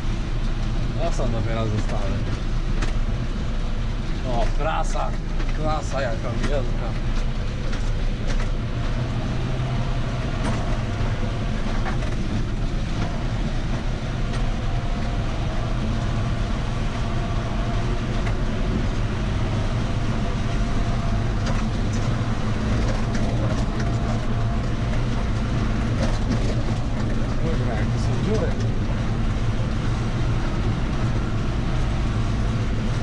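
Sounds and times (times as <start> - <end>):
tractor engine hum: 0.0 - 33.0.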